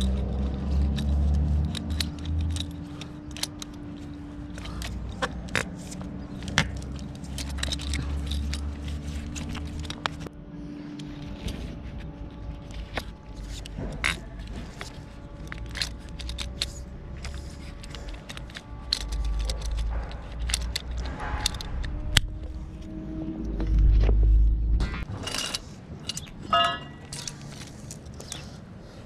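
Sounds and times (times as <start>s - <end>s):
steady low rumble: 0.0s - 29.0s
metallic clinks on pipe fitting: 25.2s - 27.4s.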